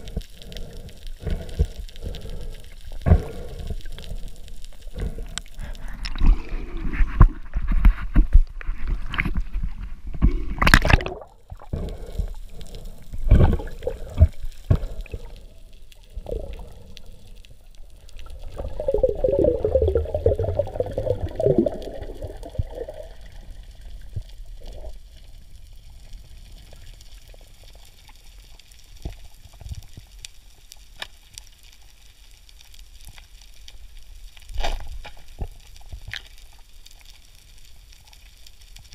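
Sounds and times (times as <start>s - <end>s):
sea water sloshing and gurgling: 4.9s - 25.2s.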